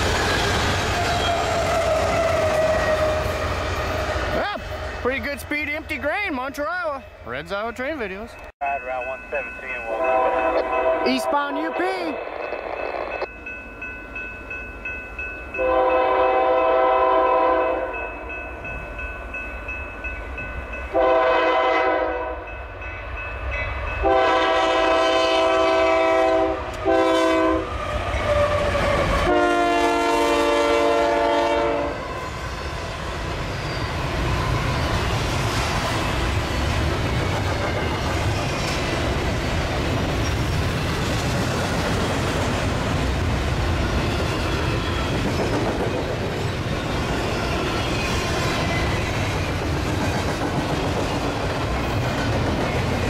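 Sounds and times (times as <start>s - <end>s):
train rumbling past: 0.0s - 53.0s
locomotive horn blasts: 9.9s - 12.0s, 15.6s - 18.0s, 20.9s - 22.5s, 24.0s - 27.7s, 29.2s - 32.1s.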